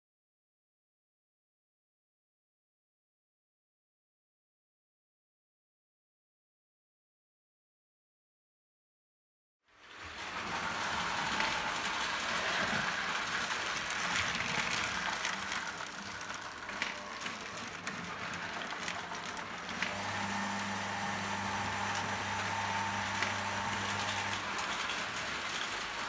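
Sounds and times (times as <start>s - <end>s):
toy train wheels rattling: 9.8s - 20.0s, 24.3s - 26.0s.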